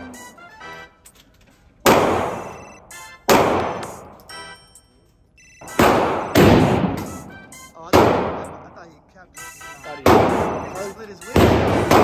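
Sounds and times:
pistol shots echoing indoors: 1.8 - 4.4, 5.6 - 8.9, 10.0 - 12.0.

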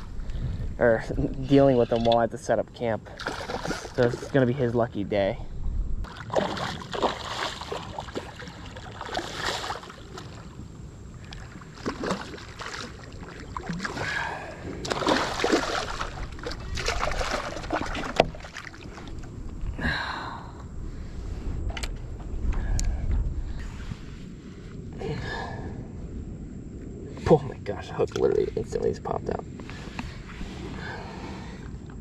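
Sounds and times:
wind rumble on microphone: 0.0 - 32.0
paddle splashing in water: 3.2 - 4.0, 6.1 - 10.5, 11.3 - 14.1, 14.8 - 19.2.

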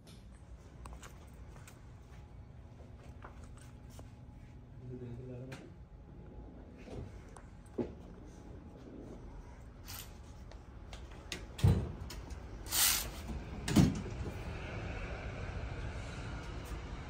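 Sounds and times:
short swishing hiss: 12.7 - 13.2.

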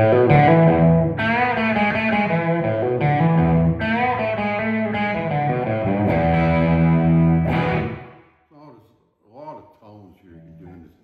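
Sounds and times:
overdriven electric guitar chords: 0.0 - 8.3.

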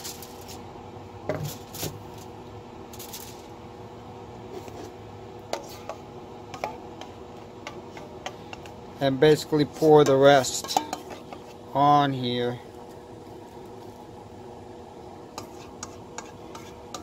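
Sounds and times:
aluminium foil crinkling: 0.0 - 0.6, 1.4 - 2.3, 2.9 - 3.5
faint steady hum: 0.0 - 17.0.

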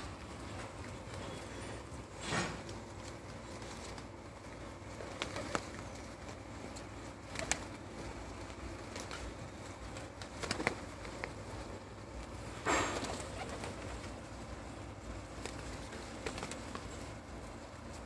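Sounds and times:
pigeons cooing: 0.0 - 18.0
wings fluttering: 0.0 - 18.0.

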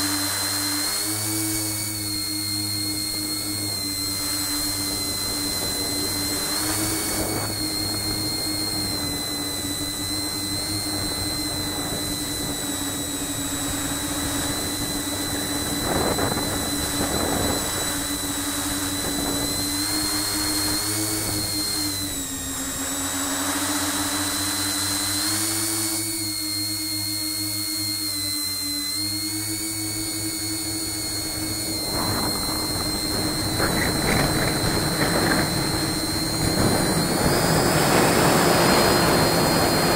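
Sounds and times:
drone motors whining: 0.0 - 39.9
wind noise rushes: 2.9 - 22.4, 31.0 - 39.9.

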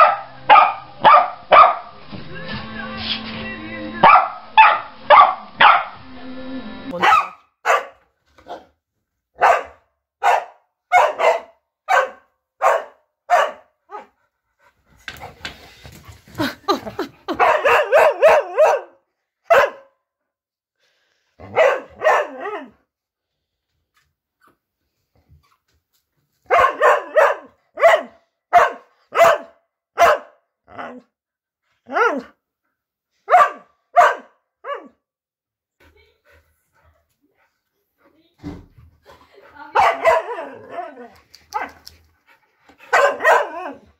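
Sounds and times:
dog barking: 0.0 - 2.0, 4.0 - 6.0, 6.9 - 8.7, 9.4 - 14.2, 17.3 - 20.0, 21.4 - 22.8, 26.5 - 31.0, 33.3 - 35.0, 39.7 - 40.9, 41.5 - 41.9, 42.9 - 43.8.

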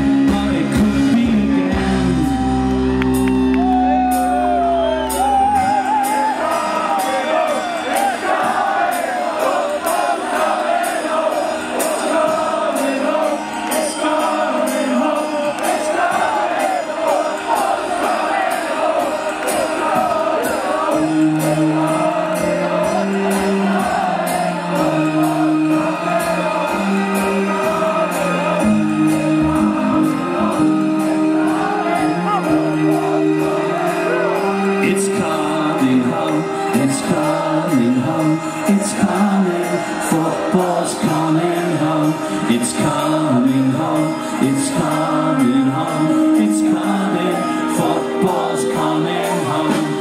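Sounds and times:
bass guitar: 0.0 - 7.1, 19.4 - 47.2
live rock band: 0.0 - 50.0
crowd singing along: 3.6 - 50.0
drum beat: 8.0 - 30.6.

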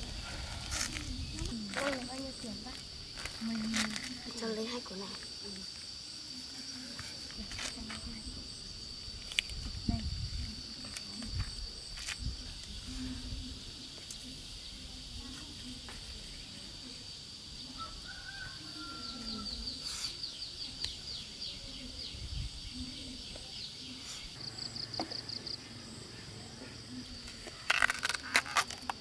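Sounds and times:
husk tearing crackles: 27.4 - 29.0.

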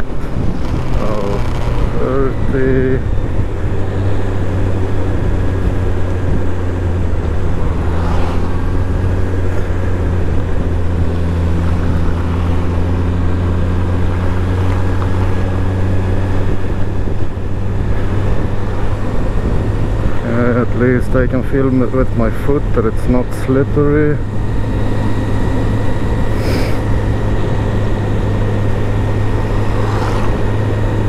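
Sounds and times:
motorcycle engine running: 0.0 - 31.0
road and wind noise: 0.0 - 31.0.

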